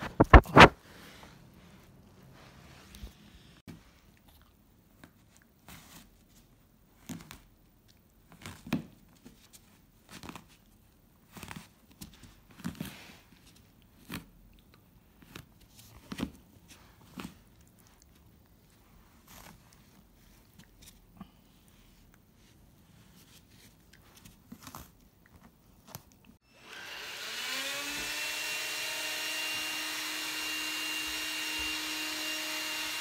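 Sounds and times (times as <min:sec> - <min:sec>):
puppy pawing and biting towel: 0:00.0 - 0:00.8.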